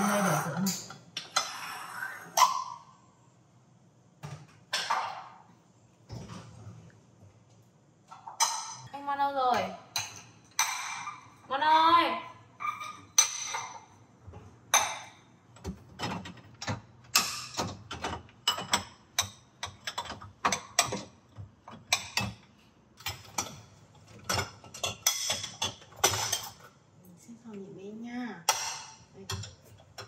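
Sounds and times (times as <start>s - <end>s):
ceramic dishes clinking: 9.9s - 11.4s, 12.6s - 13.9s.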